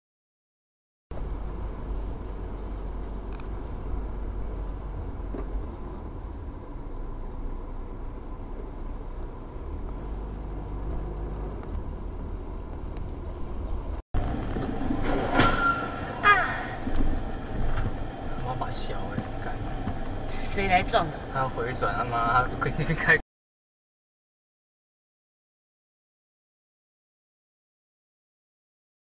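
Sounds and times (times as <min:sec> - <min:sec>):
car engine and road noise: 0:01.1 - 0:23.2.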